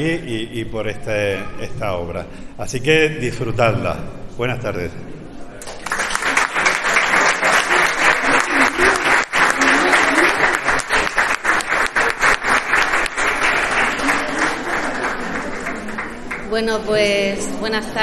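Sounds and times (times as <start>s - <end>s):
audience applauding: 5.6s - 16.7s.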